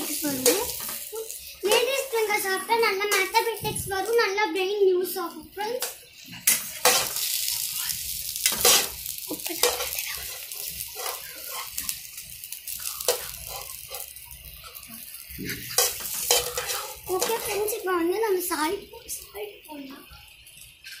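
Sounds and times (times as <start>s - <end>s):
okra sizzling in oil: 0.0s - 21.0s
spoon stirring in pan: 5.8s - 17.8s.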